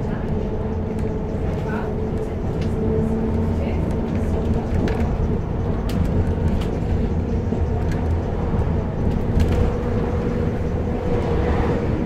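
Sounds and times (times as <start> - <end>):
bus engine drone: 0.0 - 12.0.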